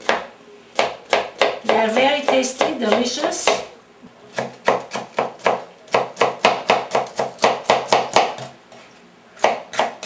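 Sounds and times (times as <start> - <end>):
knife chopping on cutting board: 4.3 - 8.8, 9.4 - 10.0.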